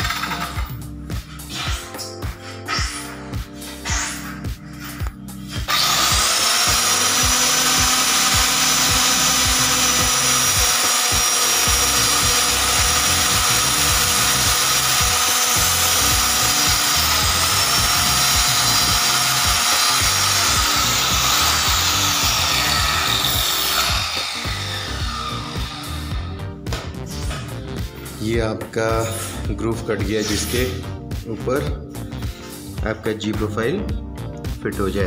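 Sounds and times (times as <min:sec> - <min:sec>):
circular cutter whining: 0:05.6 - 0:26.4.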